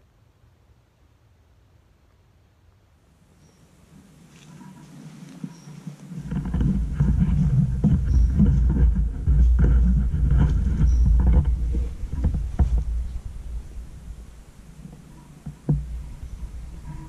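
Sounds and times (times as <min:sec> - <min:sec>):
wind buffeting microphone: 0:03.9 - 0:17.0
clicks and rustles: 0:04.3 - 0:14.1.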